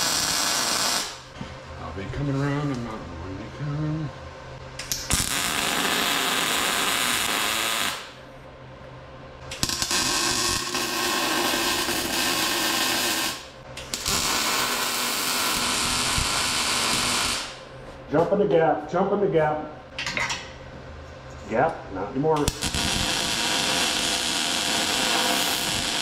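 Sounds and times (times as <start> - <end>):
welder buzzing: 0.0 - 1.3, 4.8 - 8.2, 9.5 - 17.7, 22.4 - 26.0.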